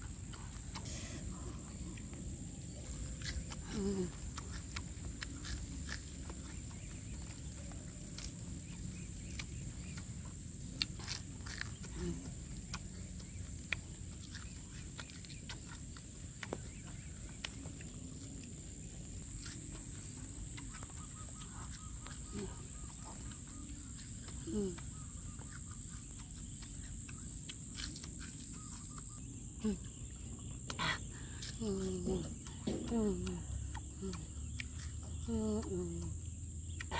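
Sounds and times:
chewing crisp insects: 0:00.0 - 0:36.9.

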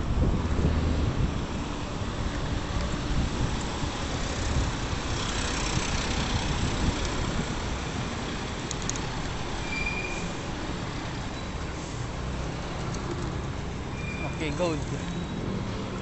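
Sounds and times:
wind buffeting microphone: 0:00.0 - 0:08.2
city traffic noise: 0:00.0 - 0:16.0.

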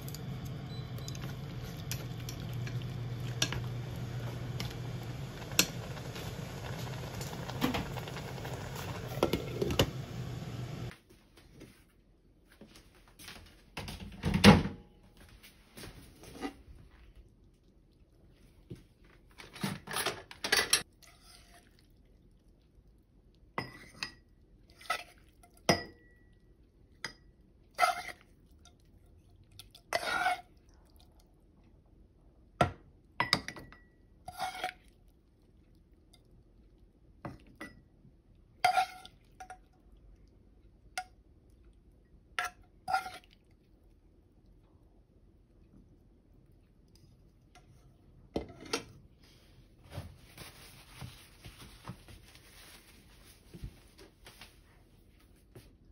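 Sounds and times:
spoon clinking against pot and cups: 0:25.6 - 0:26.2.

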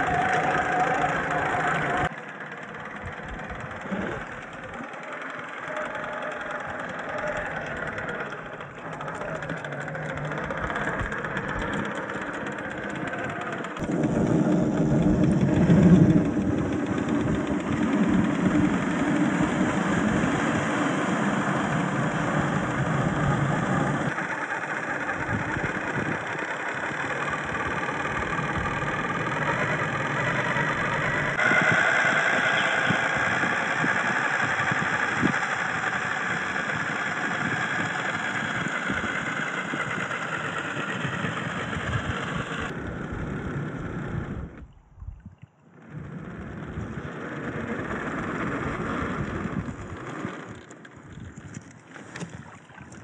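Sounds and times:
tires crunching gravel: 0:00.0 - 0:24.2
rc car motor whine: 0:00.0 - 0:44.7, 0:45.7 - 0:52.3.

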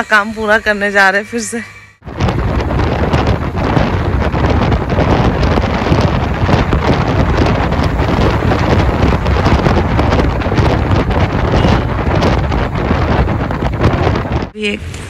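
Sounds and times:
road and engine noise: 0:02.0 - 0:15.0
wind buffeting microphone: 0:02.0 - 0:15.0.

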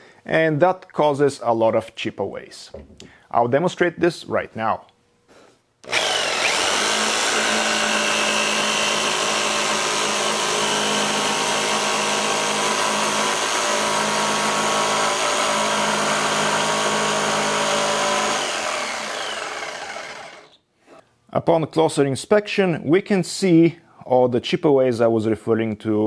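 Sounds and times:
jigsaw cutting plywood: 0:05.8 - 0:20.6.

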